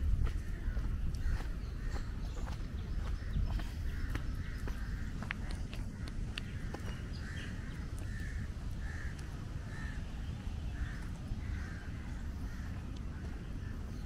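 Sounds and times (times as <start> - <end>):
steady low rumble: 0.0 - 14.0
crow cawing: 3.9 - 5.3, 5.9 - 10.1, 10.7 - 14.0.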